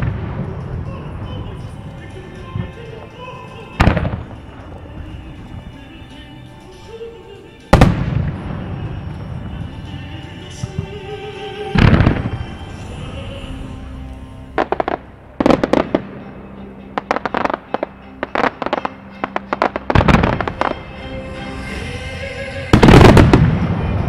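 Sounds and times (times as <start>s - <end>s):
fireworks bangs and crackles: 0.0s - 1.8s, 3.8s - 4.8s, 7.7s - 9.7s, 11.8s - 12.5s, 18.4s - 20.8s, 22.7s - 24.0s
music playing: 0.0s - 24.0s.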